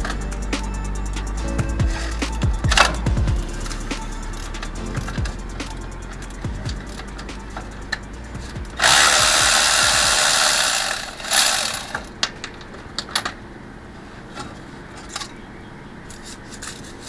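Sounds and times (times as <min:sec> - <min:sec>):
loud air hiss: 0:00.0 - 0:12.1
metallic tool clicks: 0:04.4 - 0:13.1.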